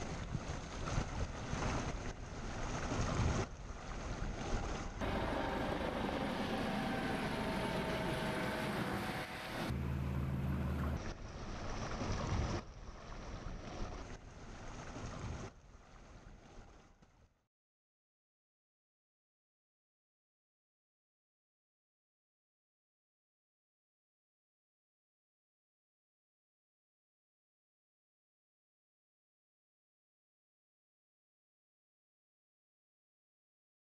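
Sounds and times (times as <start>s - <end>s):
wind on microphone: 0.0s - 5.1s
motorboat engine running: 0.0s - 15.5s
water rushing: 0.0s - 16.7s.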